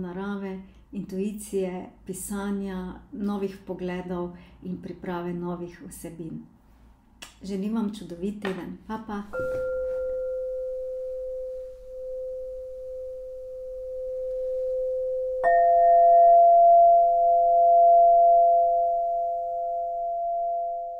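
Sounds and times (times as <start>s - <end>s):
higher struck chime tone: 9.3s - 20.9s
pure ringing chime tone: 9.4s - 20.9s.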